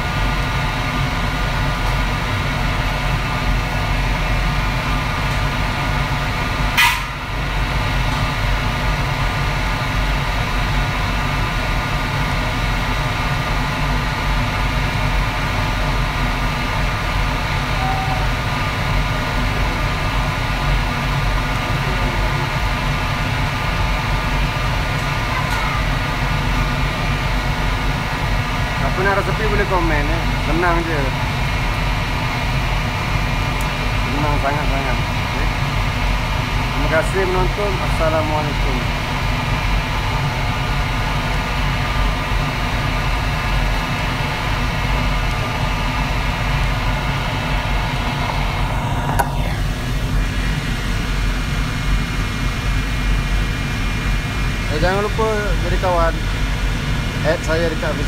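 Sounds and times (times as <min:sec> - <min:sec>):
kitchen equipment droning: 0:00.0 - 0:58.0
humming tones: 0:17.6 - 0:18.9.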